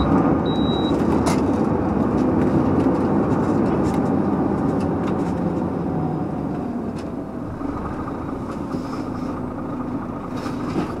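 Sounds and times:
diesel truck engine: 0:00.0 - 0:11.0
road noise: 0:00.0 - 0:11.0.

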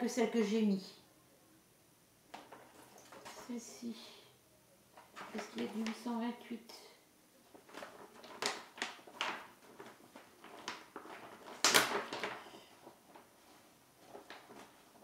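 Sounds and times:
plastic and paper crinkling: 0:02.3 - 0:03.7, 0:05.0 - 0:06.2, 0:07.4 - 0:15.0.

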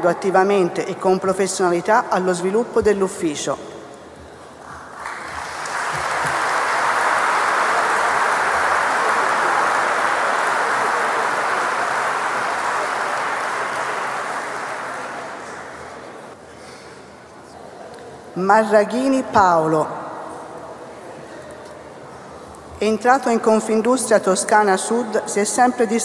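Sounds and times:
audience applauding: 0:04.8 - 0:16.1.

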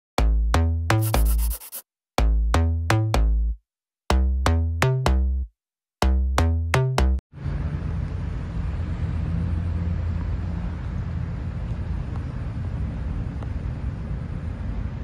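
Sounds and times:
city ambience rumble: 0:07.3 - 0:15.0.

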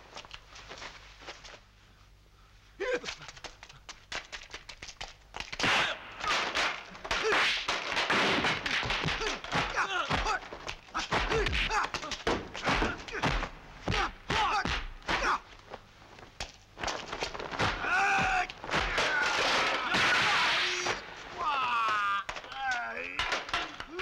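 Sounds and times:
bamboo poles clattering crash: 0:03.1 - 0:15.4, 0:16.4 - 0:24.0
punch and kick impacts: 0:05.6 - 0:15.5, 0:16.8 - 0:21.5
heavy thumps: 0:05.6 - 0:24.0.

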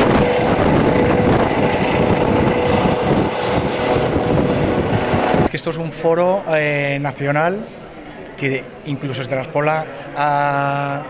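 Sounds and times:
helicopter engine whine: 0:00.0 - 0:05.5
helicopter rotor chopping: 0:00.0 - 0:05.5.

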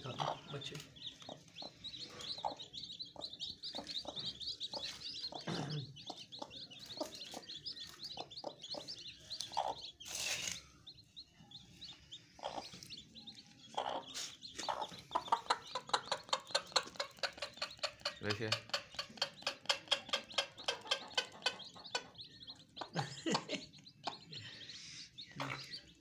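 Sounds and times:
chicks peeping: 0:00.0 - 0:26.0
hen clucking: 0:00.0 - 0:26.0
hen pecking grain: 0:13.7 - 0:23.0.

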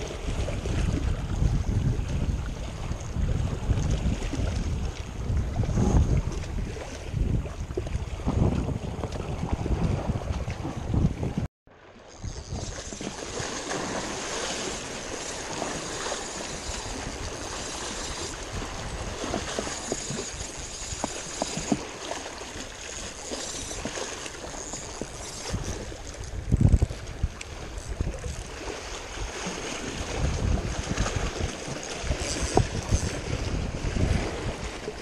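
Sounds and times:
small waves lapping against rocks: 0:11.8 - 0:35.0.

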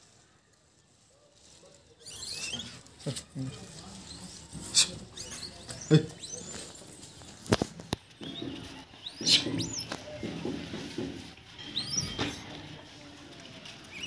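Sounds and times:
high-pitched squeaky chirps: 0:02.0 - 0:02.9, 0:04.0 - 0:07.0, 0:08.2 - 0:09.9, 0:11.6 - 0:12.4.

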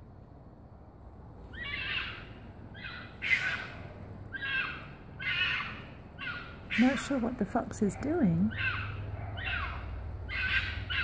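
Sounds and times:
fox calling harshly: 0:01.5 - 0:07.3, 0:08.0 - 0:11.0.

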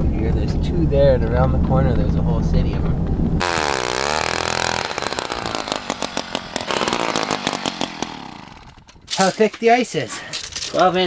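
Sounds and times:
ice auger engine running: 0:03.4 - 0:08.8.

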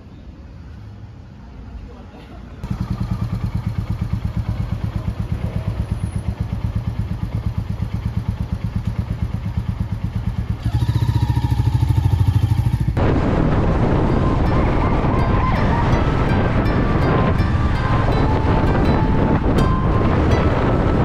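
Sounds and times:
motorcycle engine running: 0:02.6 - 0:21.0
dense even noise: 0:13.0 - 0:21.0.

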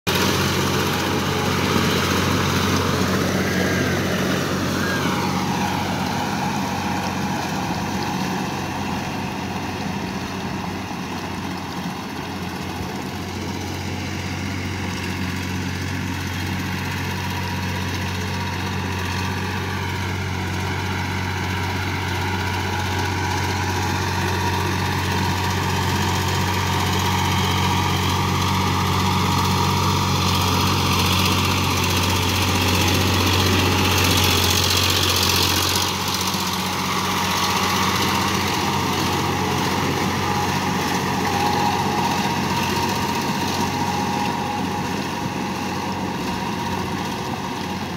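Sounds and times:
tractor diesel engine running: 0:00.1 - 0:47.9.

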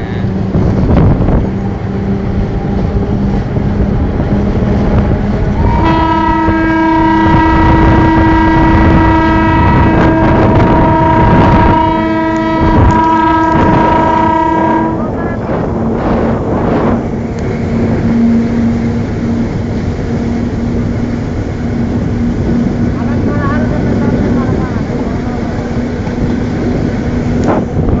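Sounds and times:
locomotive running: 0:00.0 - 0:28.0
locomotive horn blast: 0:05.4 - 0:15.6.

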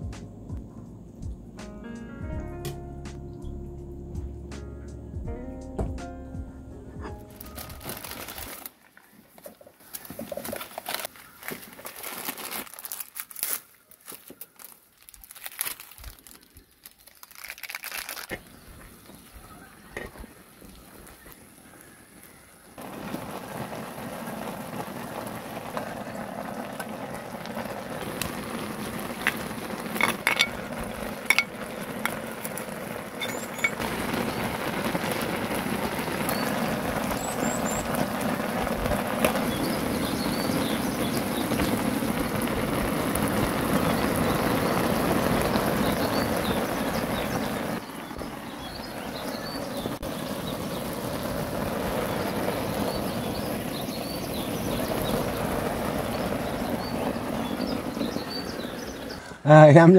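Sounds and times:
broth bubbling and hissing: 0:17.3 - 0:59.9
metal utensils clinking on lid: 0:30.0 - 0:30.6, 0:31.2 - 0:32.2, 0:33.2 - 0:33.8.

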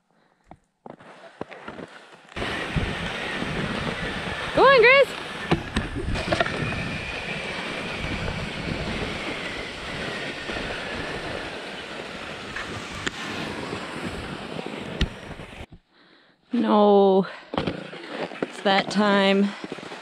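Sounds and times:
skis hissing over packed snow: 0:01.0 - 0:15.7, 0:17.7 - 0:20.0
wind rushing on microphone: 0:02.4 - 0:15.7.

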